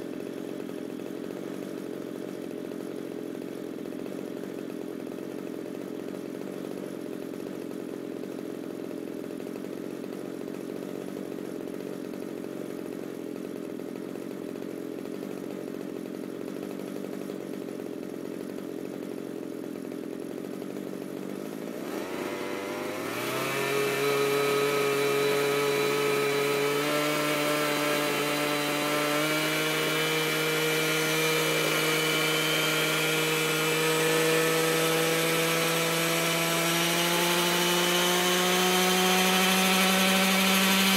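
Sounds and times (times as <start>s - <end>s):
small two-stroke engine revving: 18.4s - 40.9s.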